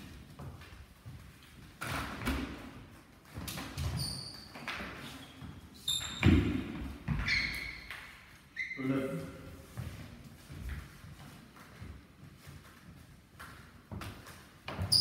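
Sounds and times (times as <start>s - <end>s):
feet shuffling on floor: 9.4s - 14.9s.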